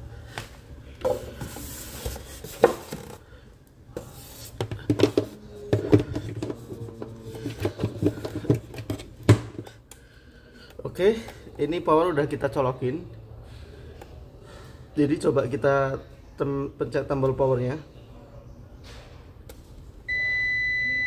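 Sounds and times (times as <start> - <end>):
plastic case rubbing and scraping: 4.1 - 9.2.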